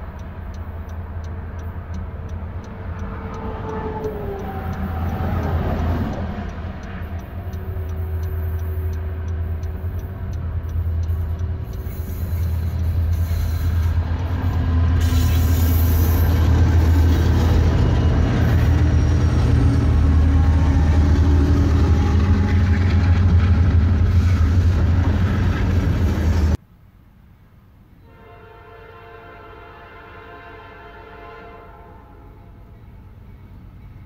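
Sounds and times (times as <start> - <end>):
diesel locomotives rumbling: 0.0 - 26.6, 27.8 - 34.0
freight cars rolling on rails: 1.2 - 26.6.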